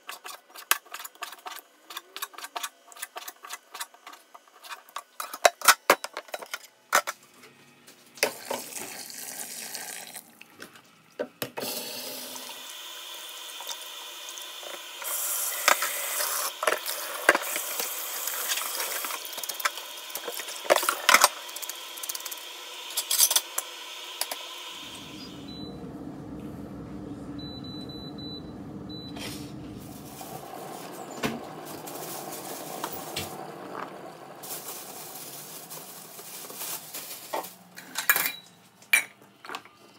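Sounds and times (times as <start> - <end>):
kitchen tap running: 8.2 - 10.3, 11.6 - 25.2, 30.0 - 36.6.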